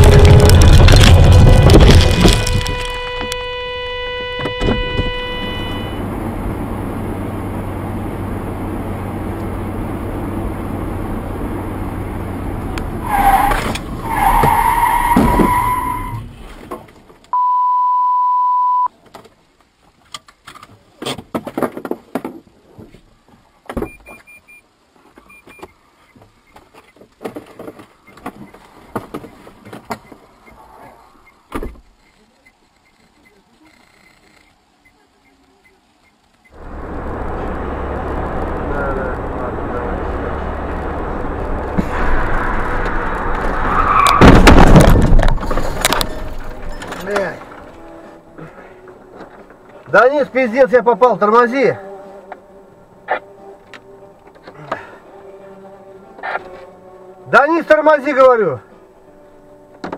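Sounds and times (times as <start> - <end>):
car engine and road noise: 0.0 - 21.3, 22.2 - 59.9
electronic beep: 17.4 - 18.9.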